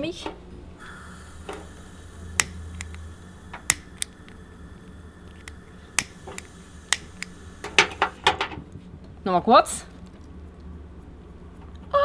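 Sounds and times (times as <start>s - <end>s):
lighter clicking: 0.9s - 8.2s.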